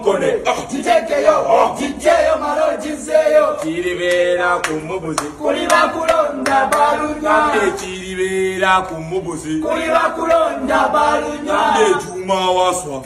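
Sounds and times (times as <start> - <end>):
group chanting and singing: 0.0 - 13.0
hand claps: 3.5 - 7.1.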